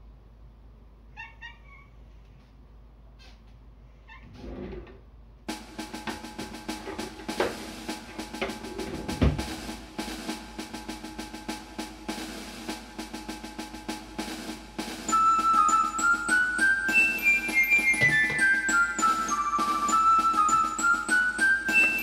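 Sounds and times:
music with busy drum beat: 5.5s - 22.0s.

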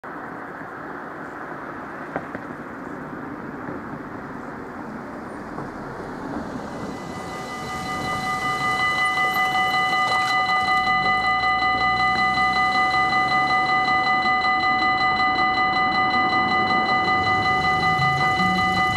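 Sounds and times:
outdoor background noise: 0.0s - 18.9s
level crossing warning bell: 6.0s - 18.9s.

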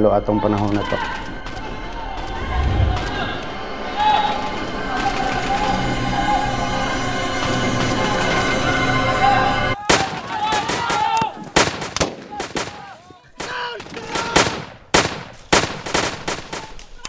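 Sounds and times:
background music: 0.0s - 11.0s
voices shouting: 0.3s - 7.2s, 8.1s - 14.6s
rifle gunfire: 14.2s - 16.7s.

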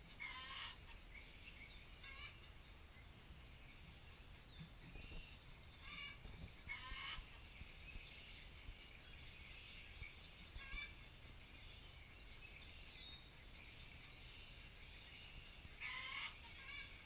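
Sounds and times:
quavering animal calls: 0.0s - 1.0s, 1.9s - 2.5s, 5.0s - 7.6s, 10.5s - 11.4s, 15.8s - 17.0s
birds chirping: 0.0s - 17.0s.

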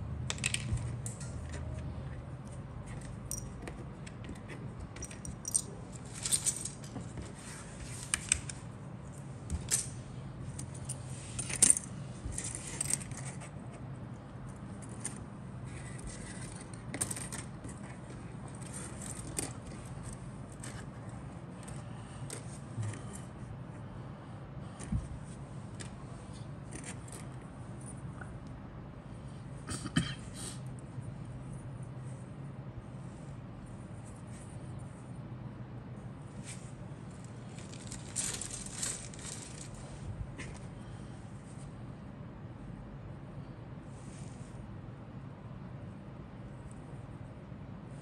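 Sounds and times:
steady low hum: 0.0s - 48.0s
plastic parts clicking and clattering: 37.5s - 39.8s.

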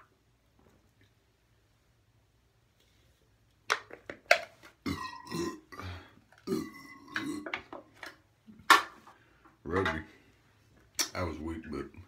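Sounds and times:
man belching loudly: 4.8s - 7.6s.

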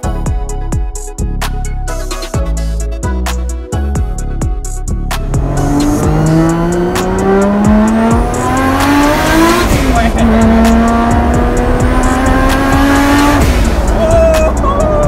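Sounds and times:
turbocharged car engine revving: 5.0s - 15.0s.

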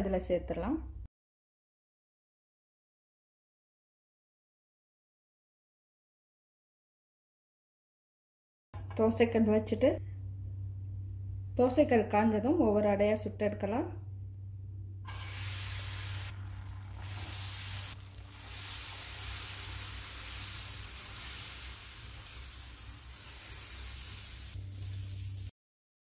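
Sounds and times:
low steady hum: 8.8s - 25.5s
batter sizzling on a hot pan: 15.1s - 25.5s.

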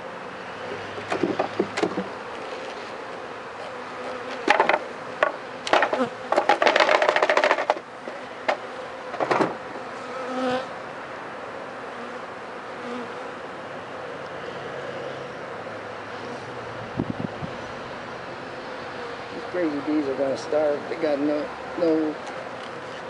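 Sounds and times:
honey bees buzzing: 0.0s - 23.0s
wooden hive frames knocking: 1.0s - 2.2s, 4.2s - 9.6s.

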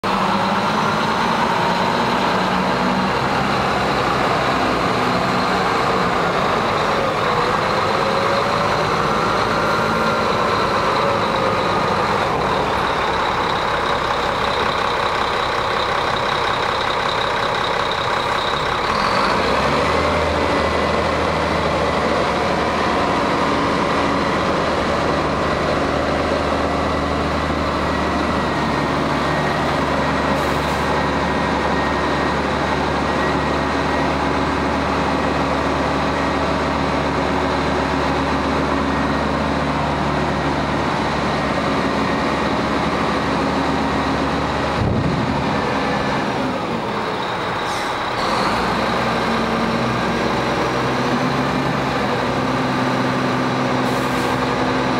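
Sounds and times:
truck diesel engine running: 0.0s - 54.9s.

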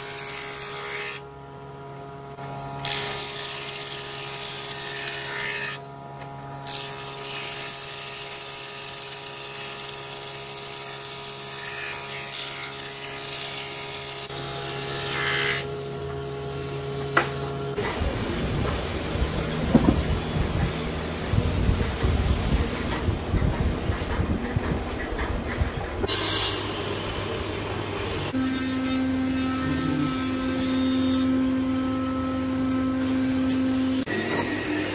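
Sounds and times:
table saw running: 6.6s - 22.0s, 26.1s - 34.9s
thickness planer motor hum: 8.7s - 25.0s, 26.0s - 34.9s
rough machine noise with knocks: 16.9s - 34.9s.

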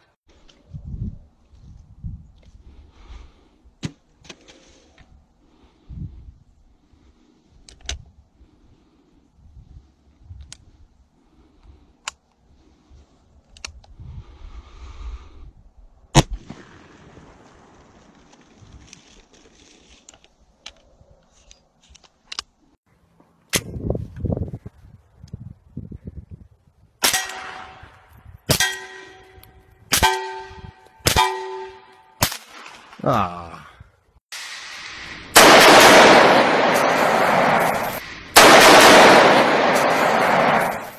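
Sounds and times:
steel target ringing: 27.1s - 32.2s
loud gunshot with echo: 34.4s - 40.9s
pistol shots: 34.4s - 40.9s.

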